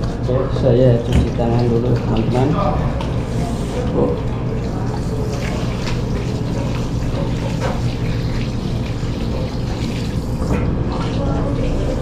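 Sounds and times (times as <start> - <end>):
tap water running into basin: 0.0 - 12.0
hands rubbing and splashing: 1.1 - 12.0.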